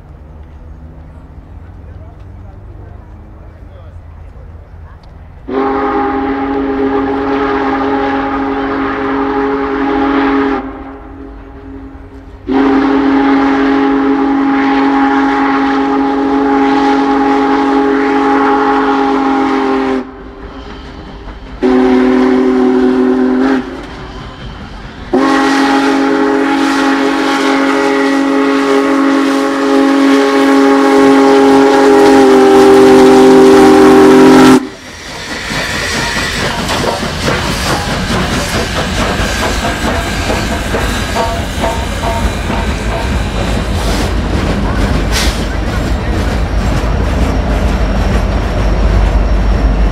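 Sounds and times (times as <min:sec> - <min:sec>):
steam whistle blasts: 0:05.4 - 0:38.0
train wheels clattering on rails: 0:20.2 - 0:32.8, 0:34.6 - 0:49.9.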